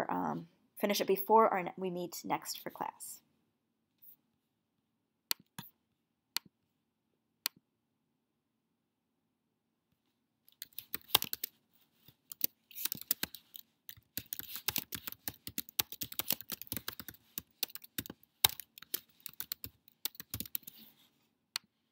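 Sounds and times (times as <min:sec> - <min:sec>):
computer keyboard typing: 0:10.5 - 0:11.6, 0:12.2 - 0:20.9.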